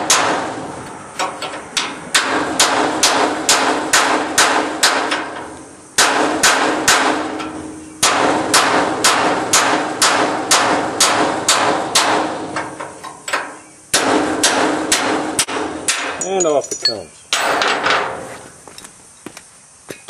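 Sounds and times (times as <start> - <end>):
hammer striking steel punch: 0.0 - 0.6, 1.8 - 12.8, 13.9 - 16.6.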